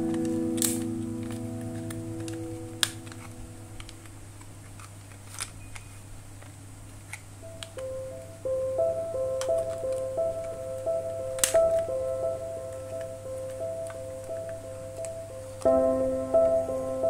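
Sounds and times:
background music: 0:00.0 - 0:03.9, 0:07.6 - 0:17.0
low steady hum: 0:00.0 - 0:17.0.

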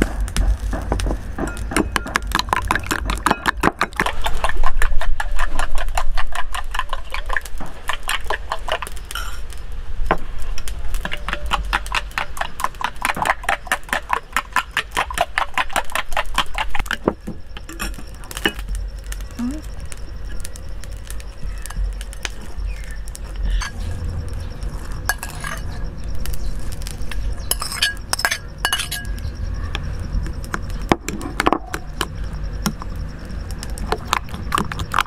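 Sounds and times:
spoon clinking against glass bowl: 0:09.1 - 0:09.4, 0:25.1 - 0:25.8, 0:27.4 - 0:29.2.

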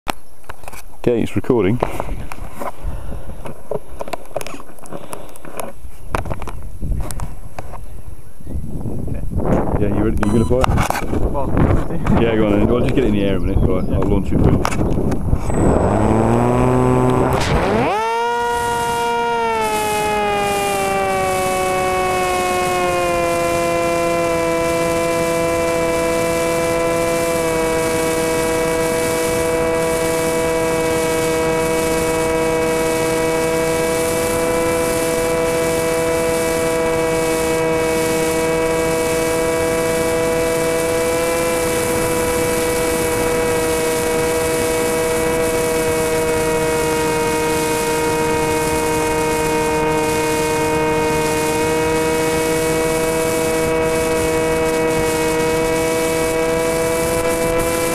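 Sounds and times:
rushing wind: 0:01.9 - 0:57.9
model aircraft motor whine: 0:14.6 - 0:57.9.

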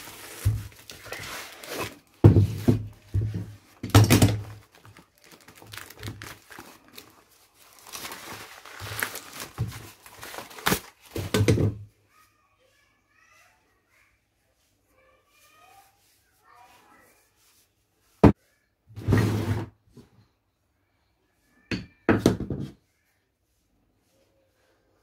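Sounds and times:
cardboard and paper tearing: 0:00.0 - 0:02.2, 0:04.3 - 0:11.2.

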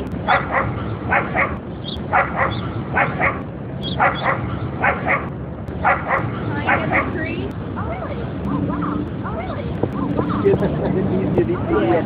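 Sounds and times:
dog barking: 0:00.3 - 0:07.2.

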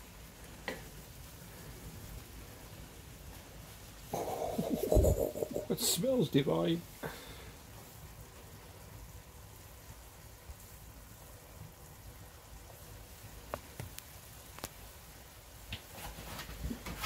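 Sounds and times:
omelette sizzling in pot: 0:00.0 - 0:17.0
light ticks and pops: 0:13.4 - 0:14.9.

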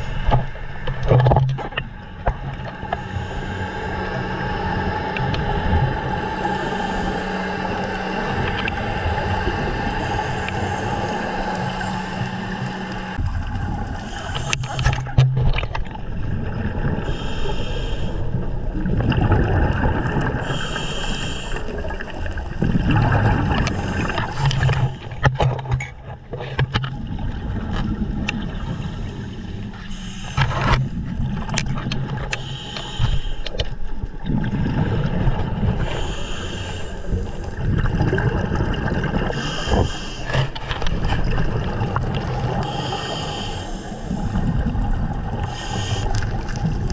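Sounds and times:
exhaled bubbles gurgling underwater: 0:00.0 - 0:46.9
diving gear knocking and scraping: 0:00.2 - 0:03.1, 0:14.3 - 0:16.1, 0:22.6 - 0:28.4, 0:30.3 - 0:32.4, 0:39.7 - 0:42.3.

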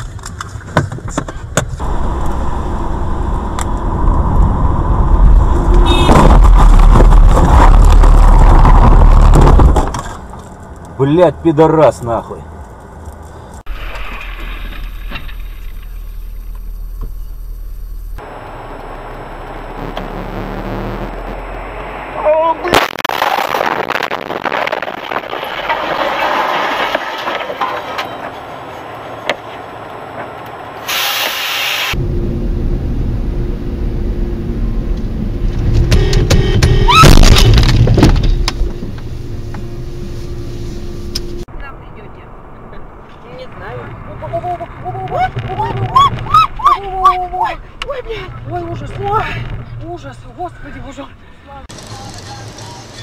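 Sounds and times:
car engine and tyre rumble: 0:00.0 - 0:53.0.

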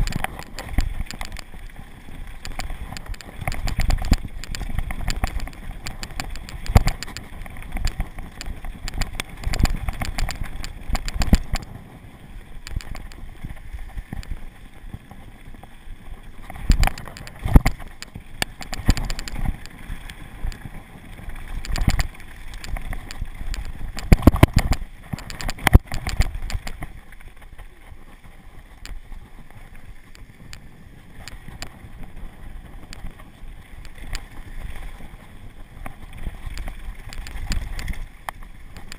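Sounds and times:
bike rattling and clunking: 0:00.0 - 0:11.9, 0:16.3 - 0:27.5, 0:31.2 - 0:38.9
wind on microphone: 0:00.0 - 0:38.9.

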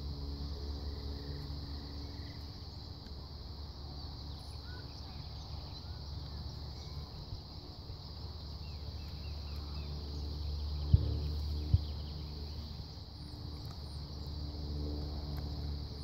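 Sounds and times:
high insect hum: 0:00.0 - 0:16.0
wind rumble on microphone: 0:05.1 - 0:16.0.

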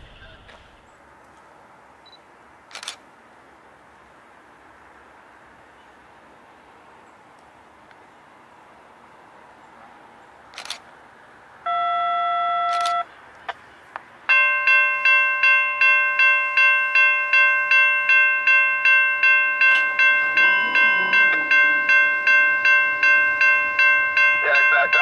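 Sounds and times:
sharp clicks: 0:02.7 - 0:03.0, 0:10.5 - 0:10.9
railroad crossing bell ringing: 0:11.7 - 0:13.1, 0:14.2 - 0:25.0
steady tone: 0:14.3 - 0:25.0.

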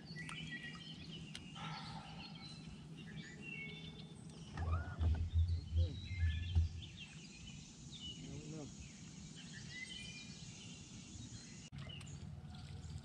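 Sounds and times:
birds chirping: 0:00.0 - 0:13.0
faint low hum: 0:01.0 - 0:09.4
low rumbling thumps: 0:04.5 - 0:07.3.

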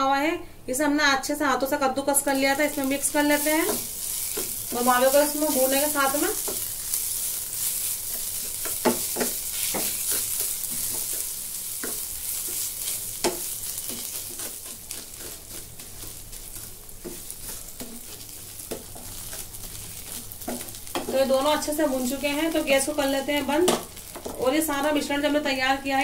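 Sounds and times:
food sizzling in a frying pan: 0:01.9 - 0:26.0
spatula scraping a pan: 0:03.2 - 0:22.6.

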